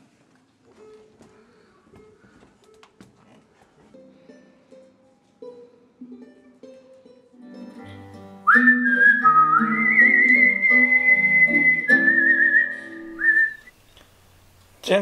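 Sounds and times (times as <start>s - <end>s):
acoustic guitar chords: 6.0s - 13.6s
man whistling a slow melody: 8.4s - 13.7s.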